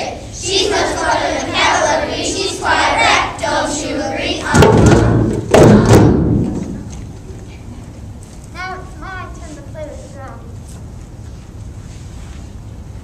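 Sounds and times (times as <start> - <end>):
children singing together: 0.0 - 6.3.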